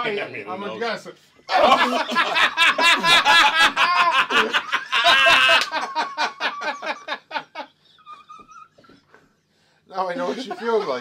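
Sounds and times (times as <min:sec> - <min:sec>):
men laughing: 0:01.5 - 0:09.3, 0:10.0 - 0:11.0.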